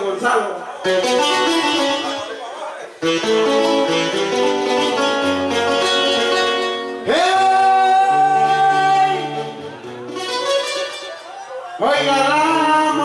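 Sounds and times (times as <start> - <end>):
acoustic guitars playing: 0.8 - 13.0
man singing: 7.0 - 9.7, 11.7 - 13.0.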